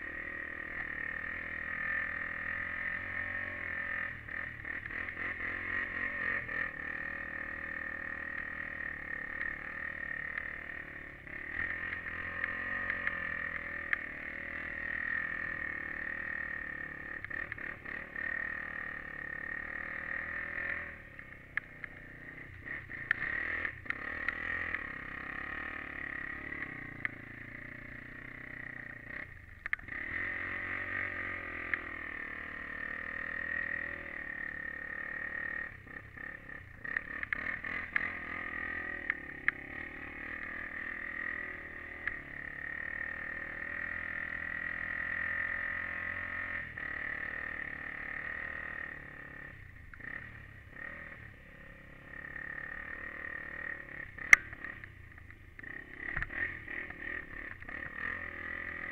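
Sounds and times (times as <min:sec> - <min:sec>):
quad bike engine buzzing: 0:00.0 - 0:58.9.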